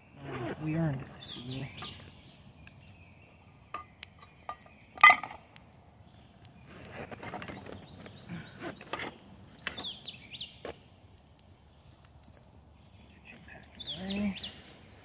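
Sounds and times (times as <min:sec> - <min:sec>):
rustling and knocking of gear: 0:06.7 - 0:10.0.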